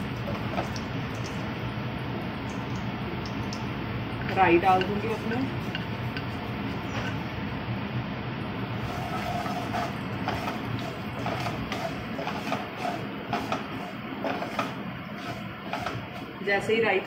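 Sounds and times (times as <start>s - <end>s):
wooden spatula scraping pan: 5.7s - 7.2s, 8.8s - 16.5s
seeds sizzling in hot oil: 8.6s - 16.4s.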